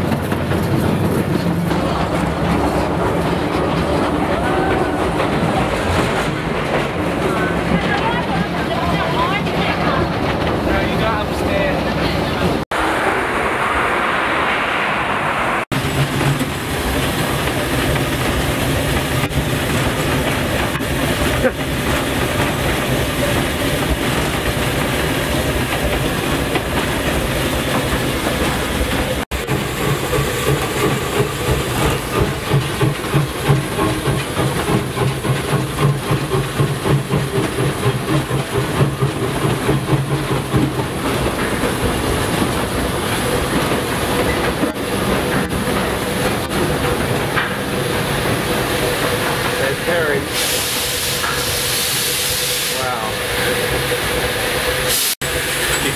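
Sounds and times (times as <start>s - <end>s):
train wheels beating on rails: 0.0s - 55.9s
steam hiss: 47.6s - 55.9s.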